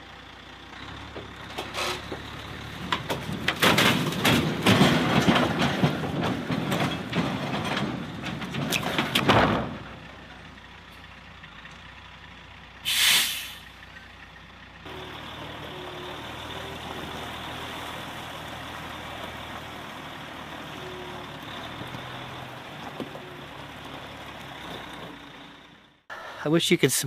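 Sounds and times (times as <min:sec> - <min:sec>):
diesel engine running: 0:00.0 - 0:26.6
air brakes hissing: 0:12.8 - 0:13.8.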